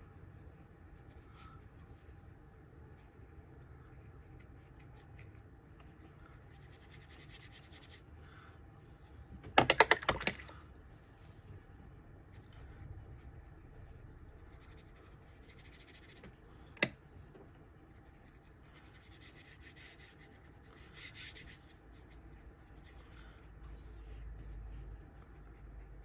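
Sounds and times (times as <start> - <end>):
brush scratching on paper: 6.2 - 8.1, 12.5 - 16.9, 17.7 - 26.0.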